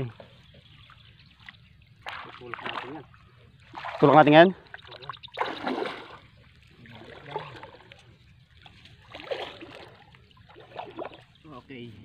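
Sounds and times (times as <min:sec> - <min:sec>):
muddy water sloshing and splashing: 0:00.0 - 0:11.9.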